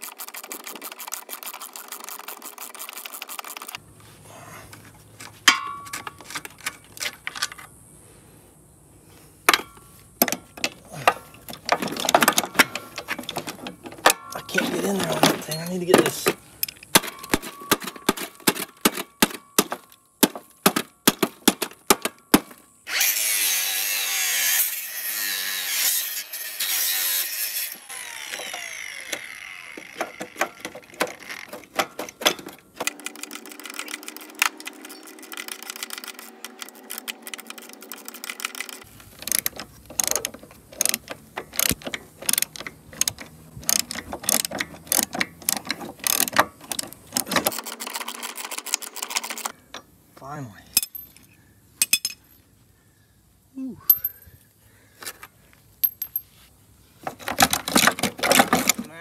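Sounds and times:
ratchet wrench clicking: 38.4s - 46.9s.

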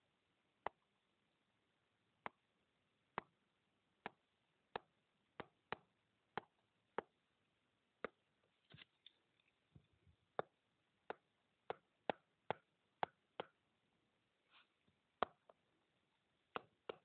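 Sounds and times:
stylus tapping on tablet screen: 4.0s - 7.2s, 8.0s - 8.3s, 10.3s - 13.6s, 15.2s - 15.6s, 16.5s - 17.0s.

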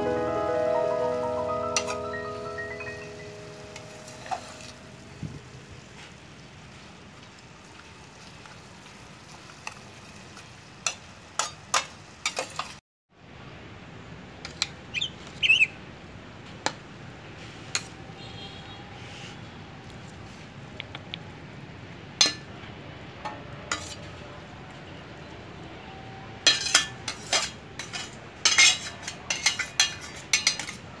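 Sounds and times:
greens sizzling in a pan: 3.1s - 12.8s
metal spatula scraping pan: 23.7s - 24.1s, 26.5s - 30.8s.

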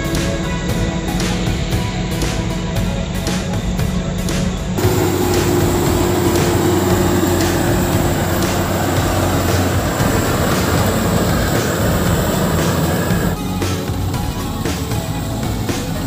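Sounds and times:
combine harvester machinery drone: 0.0s - 16.0s
high steady whine: 0.0s - 16.0s.

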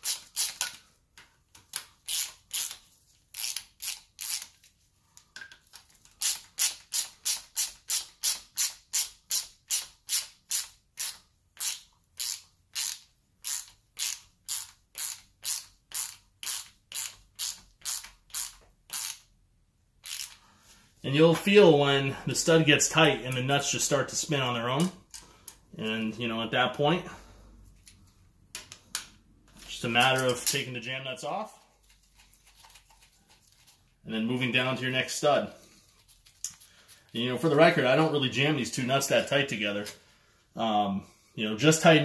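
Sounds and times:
hand ratchet clicking: 0.0s - 0.8s, 1.5s - 4.6s, 5.7s - 19.3s, 20.0s - 20.4s.

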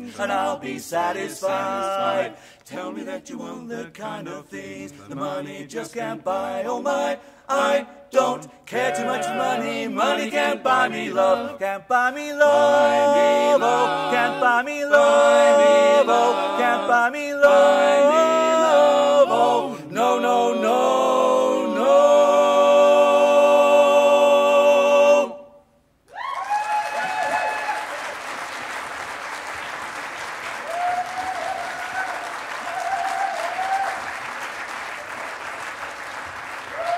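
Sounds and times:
male quartet singing a cappella: 0.0s - 25.6s
audience cheering: 26.1s - 36.9s
audience applause: 26.2s - 36.9s.

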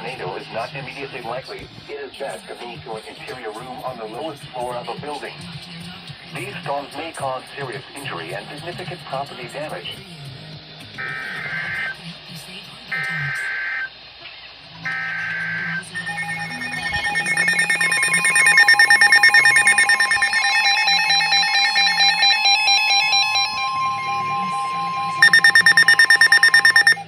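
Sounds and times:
pulsing alarm beeps: 11.0s - 12.0s, 13.0s - 13.9s, 14.9s - 27.0s
steady warning tone: 11.0s - 12.0s, 12.9s - 13.9s, 14.8s - 27.0s
screeching digital bursts: 13.0s - 13.9s, 14.9s - 27.0s
loud rapid beeping: 14.9s - 27.0s.

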